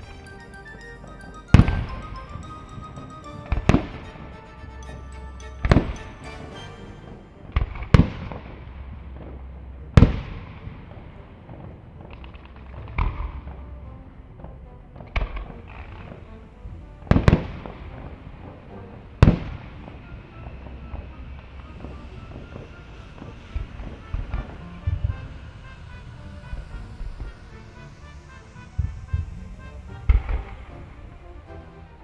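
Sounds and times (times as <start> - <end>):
firework shells bursting: 21.7 - 31.2.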